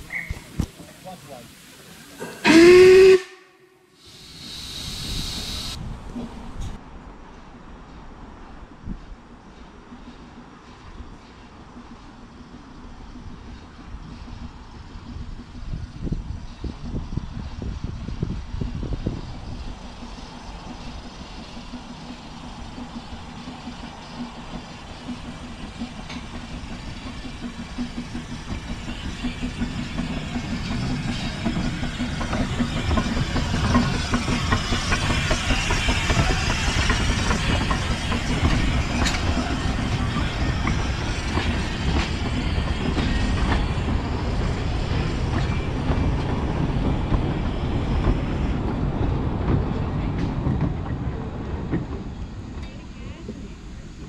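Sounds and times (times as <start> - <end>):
steam locomotive rumbling: 0.0 - 54.0
wheels clicking over rail joints: 20.8 - 54.0.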